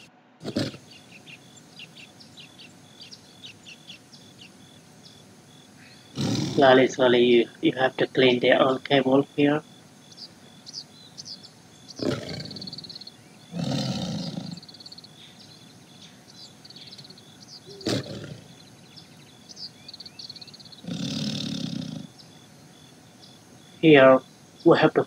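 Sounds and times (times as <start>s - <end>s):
tiger growl: 0.0s - 24.7s
faint high chirping: 0.0s - 25.0s.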